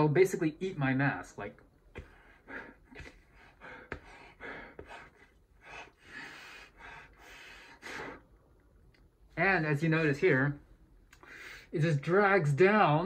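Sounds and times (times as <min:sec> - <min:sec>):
man breathing through fabric mask: 0:02.0 - 0:08.4, 0:11.2 - 0:11.8.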